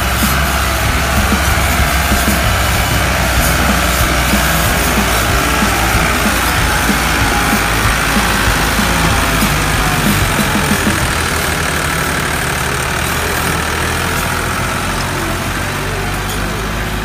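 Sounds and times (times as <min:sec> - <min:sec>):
tractor diesel engine under load: 0:00.0 - 0:17.0.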